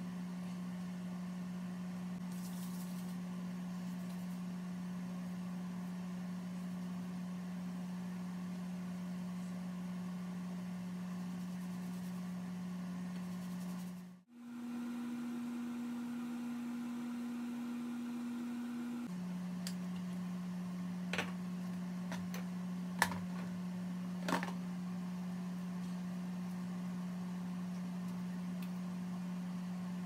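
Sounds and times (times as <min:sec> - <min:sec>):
electrical hum: 0:00.0 - 0:30.0.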